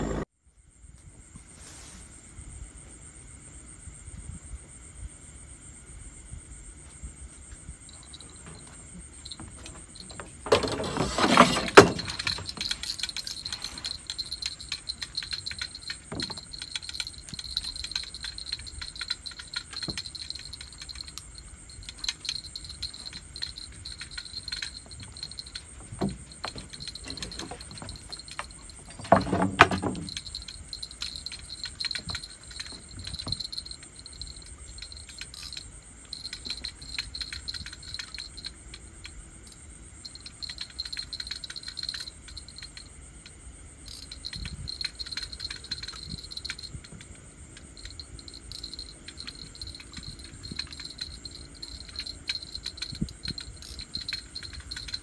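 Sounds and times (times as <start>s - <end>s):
insects chirping: 0.1s - 55.0s
knocks or rustles: 8.0s - 18.5s, 22.0s - 34.2s.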